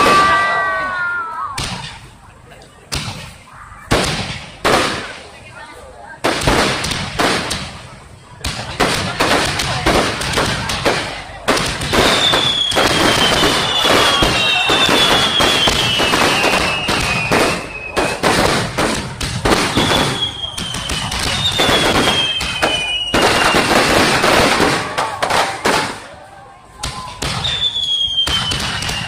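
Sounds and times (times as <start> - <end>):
firework shells bursting: 6.3 - 26.1
descending firework whistles: 11.9 - 18.4, 19.5 - 23.8, 26.9 - 29.0.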